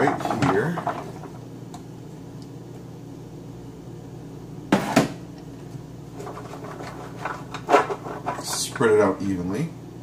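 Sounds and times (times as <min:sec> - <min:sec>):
pan scraping and knocking: 0:00.0 - 0:01.4, 0:06.1 - 0:08.8
steady low hum: 0:00.0 - 0:10.0.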